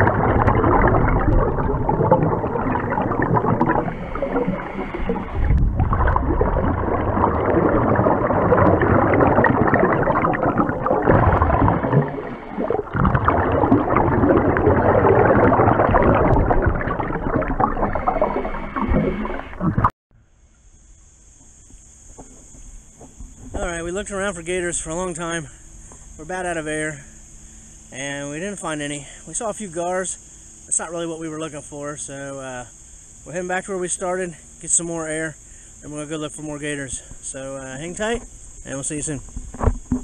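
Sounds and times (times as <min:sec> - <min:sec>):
bubbles: 0:00.0 - 0:19.9
muffled underwater rushing and gurgling: 0:00.0 - 0:19.9, 0:21.4 - 0:40.0.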